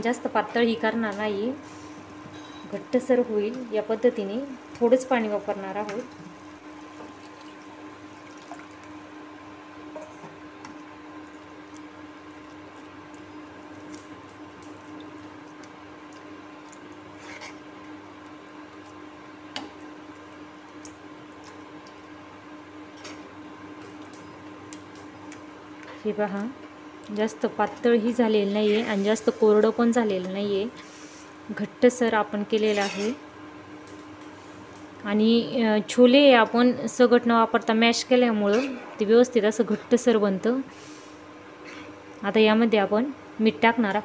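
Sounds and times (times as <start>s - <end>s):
steady hum: 0.0s - 44.0s
wet squishing of stirred mash: 10.6s - 19.1s.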